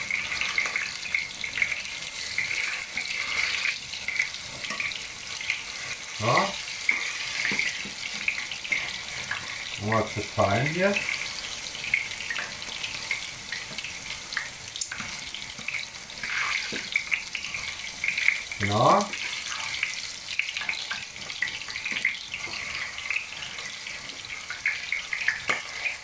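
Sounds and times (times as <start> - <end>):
potato frying in hot oil: 0.0 - 26.0.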